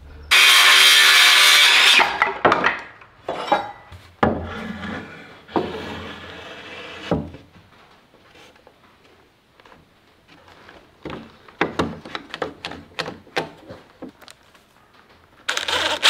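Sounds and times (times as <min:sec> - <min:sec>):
circular saw cutting board: 0:00.2 - 0:02.2
wood scraping: 0:00.3 - 0:07.5
hollow wooden knocks and clatter: 0:10.7 - 0:14.3.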